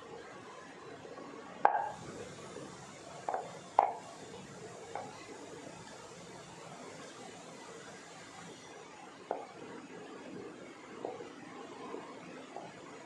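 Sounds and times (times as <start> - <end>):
rolling pin knocking on board: 3.3 - 4.0.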